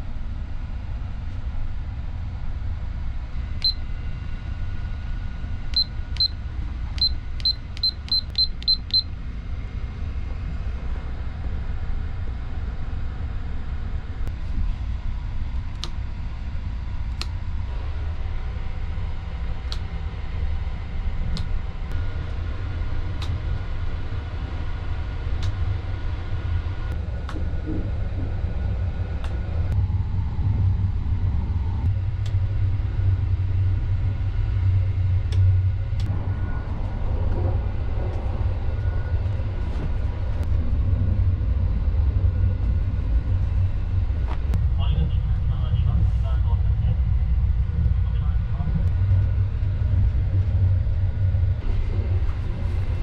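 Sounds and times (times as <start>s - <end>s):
low rumble of moving train: 0.0s - 53.0s.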